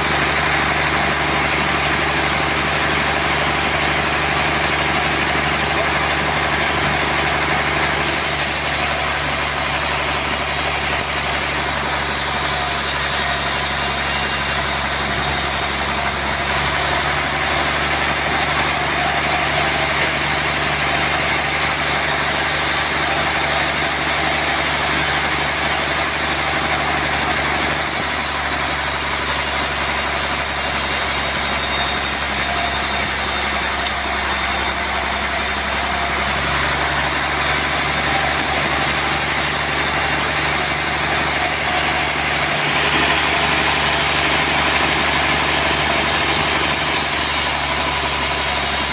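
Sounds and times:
band sawmill hum: 0.0s - 48.9s
high hiss of saw: 8.0s - 19.6s, 21.8s - 42.5s, 46.6s - 48.9s.

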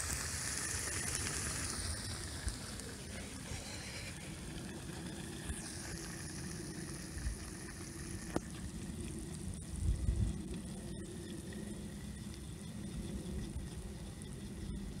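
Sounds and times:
oil sizzling on hot engine: 0.0s - 15.0s
wind rumble on microphone: 4.7s - 15.0s.

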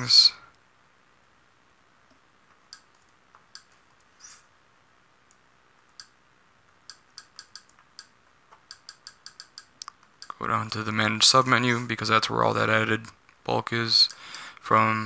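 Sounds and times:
sharp menu clicks: 6.8s - 10.4s.

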